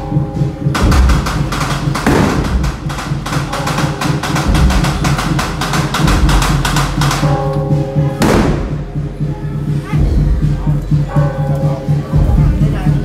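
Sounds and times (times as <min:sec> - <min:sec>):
fast sharp percussive clatter: 0:00.7 - 0:07.4.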